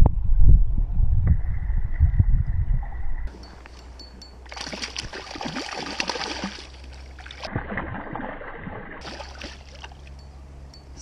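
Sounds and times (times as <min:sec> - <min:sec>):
river flowing: 0:03.3 - 0:07.5, 0:09.0 - 0:10.6
fish splashing at surface: 0:04.5 - 0:10.1.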